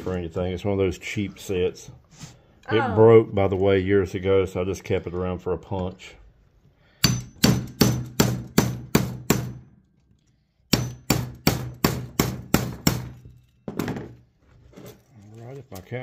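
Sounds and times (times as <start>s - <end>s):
hammer striking metal: 7.0s - 9.7s, 10.7s - 13.4s.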